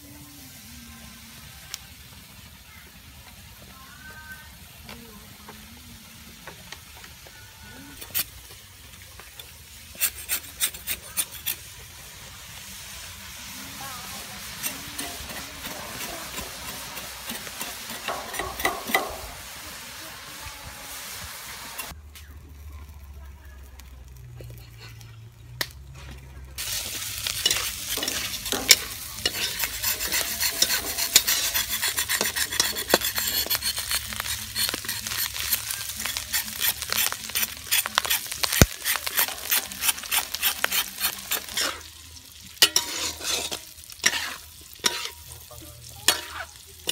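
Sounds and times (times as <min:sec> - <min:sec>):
meat sizzling in oil: 0:07.9 - 0:22.0, 0:26.6 - 0:46.9
metal spatula scraping pan: 0:09.8 - 0:11.8, 0:13.8 - 0:19.4, 0:26.6 - 0:42.0, 0:42.6 - 0:46.9.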